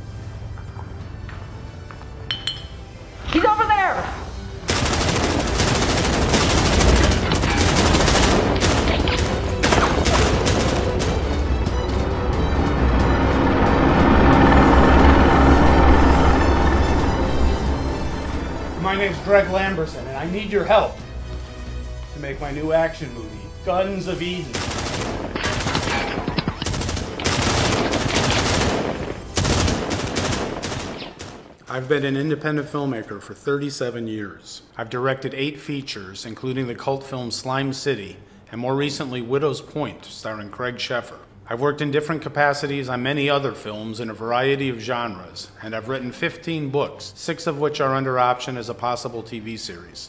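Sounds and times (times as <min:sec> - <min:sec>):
automatic rifle fire: 0:04.7 - 0:11.2, 0:24.5 - 0:31.5.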